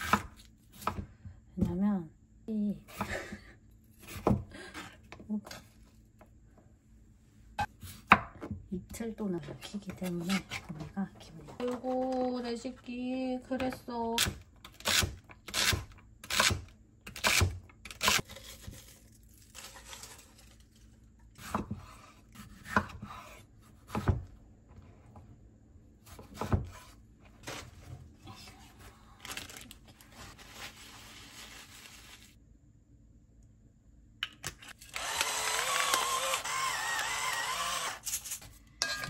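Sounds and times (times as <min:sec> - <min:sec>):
knife slicing tomato: 0:21.4 - 0:24.2, 0:26.0 - 0:27.0
knife chopping on wooden board: 0:21.4 - 0:24.3, 0:26.0 - 0:27.0
paper towel rustling: 0:28.5 - 0:32.4.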